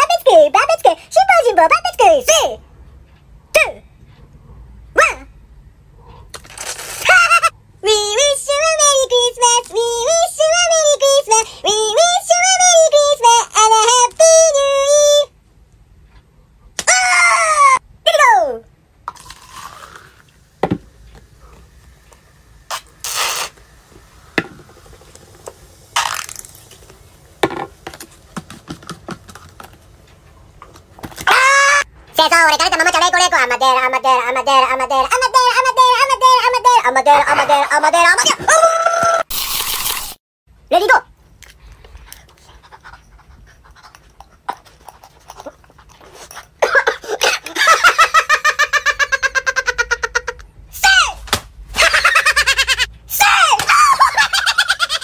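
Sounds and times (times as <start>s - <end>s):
bottle hiss: 22.7s - 26.9s, 39.3s - 40.2s
faint chewing: 41.4s - 46.6s.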